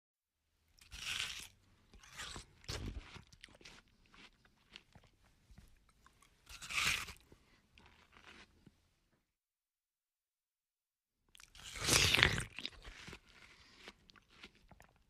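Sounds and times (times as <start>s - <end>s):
person crunching and chewing melon: 0.8s - 8.7s, 11.4s - 15.0s.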